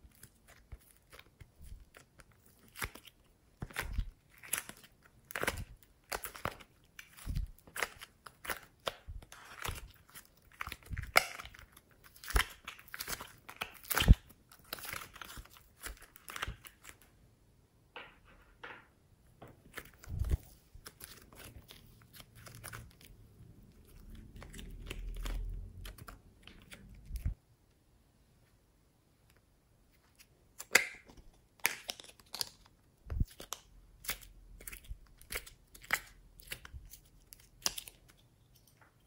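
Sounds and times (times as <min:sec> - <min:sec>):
slime crackling and popping: 0:00.1 - 0:16.9.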